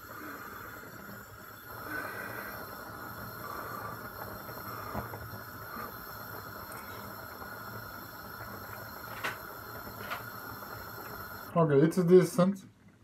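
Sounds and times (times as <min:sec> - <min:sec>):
pot of water boiling: 0:00.0 - 0:13.0.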